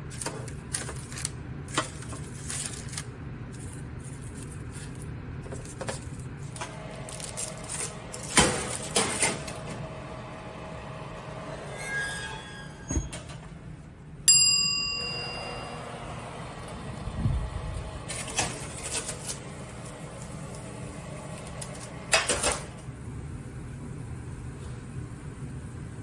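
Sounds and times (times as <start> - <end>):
metallic clang ringing: 14.3 - 16.0.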